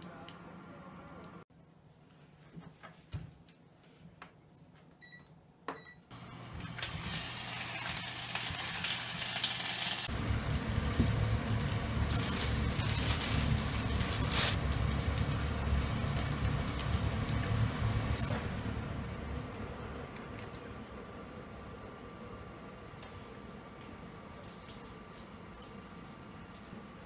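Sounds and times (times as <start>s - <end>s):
sausages frying in pan: 6.2s - 19.4s
low rumble: 10.1s - 21.2s.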